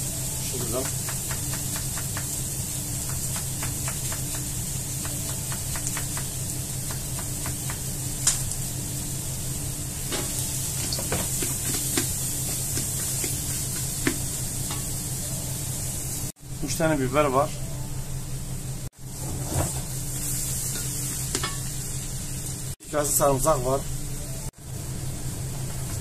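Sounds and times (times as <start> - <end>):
onions sizzling in oil: 0.0 - 16.4, 19.0 - 26.0
wooden spatula stirring onions: 10.7 - 14.5.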